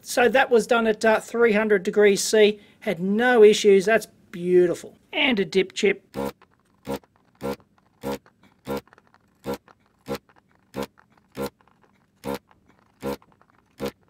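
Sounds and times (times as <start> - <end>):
desoldering vacuum pump buzzing: 6.1 - 11.6, 12.2 - 13.2, 13.8 - 14.0.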